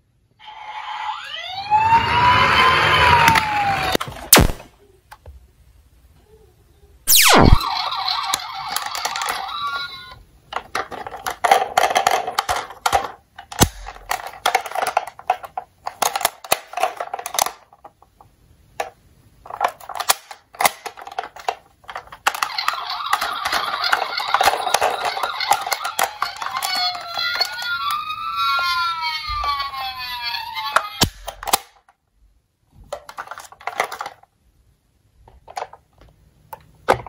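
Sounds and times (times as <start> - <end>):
toy electronic siren: 0.4 - 3.9, 7.1 - 10.2, 22.4 - 31.0
plastic toy clicks and knocks: 8.3 - 9.9, 10.5 - 28.8, 30.7 - 32.0, 32.9 - 34.3, 35.2 - 37.0.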